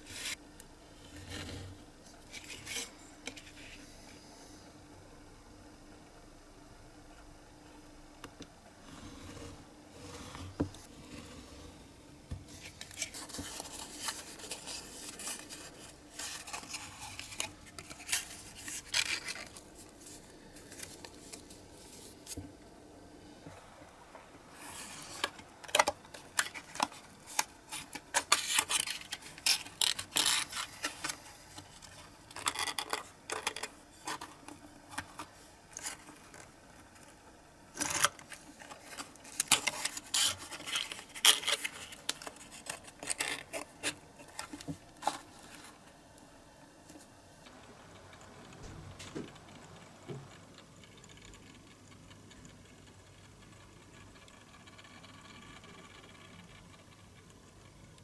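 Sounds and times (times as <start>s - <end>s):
card crackling rustles: 12.5s - 22.5s, 24.5s - 45.8s.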